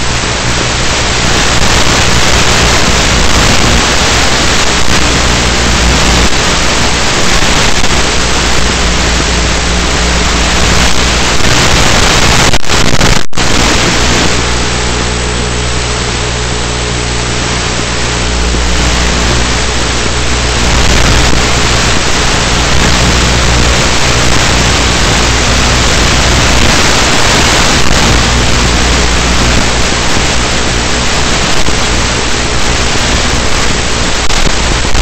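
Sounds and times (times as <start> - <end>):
wind rush on microphone: 0.0 - 35.0
electric motor and propeller hum: 13.4 - 35.0.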